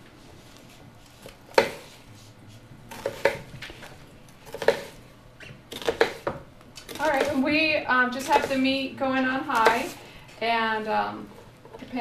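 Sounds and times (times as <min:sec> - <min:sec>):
knife chopping on wooden board: 0:01.5 - 0:01.9, 0:02.9 - 0:03.5, 0:04.5 - 0:05.0, 0:05.7 - 0:07.4, 0:08.2 - 0:08.6, 0:09.5 - 0:09.9.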